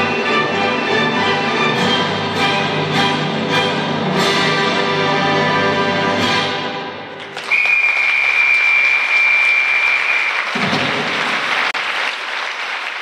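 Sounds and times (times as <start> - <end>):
audience applause: 7.2 - 13.0.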